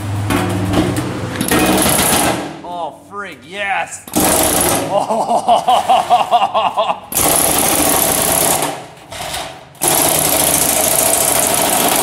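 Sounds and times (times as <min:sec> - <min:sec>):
air hammer chiselling sheet metal: 0:00.3 - 0:02.5, 0:04.1 - 0:04.9, 0:07.1 - 0:12.0.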